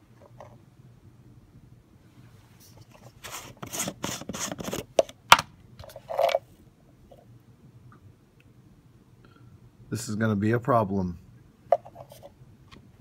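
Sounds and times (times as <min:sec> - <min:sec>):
plastic lid scraping: 0:02.9 - 0:05.2.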